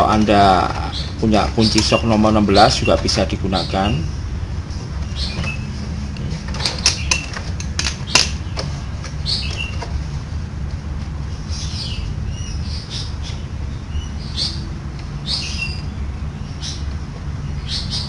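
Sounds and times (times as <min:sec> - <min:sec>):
small birds chirping: 0:00.0 - 0:10.2, 0:11.1 - 0:18.0
steady low hum: 0:00.0 - 0:18.0
sharp metallic click: 0:06.2 - 0:09.9.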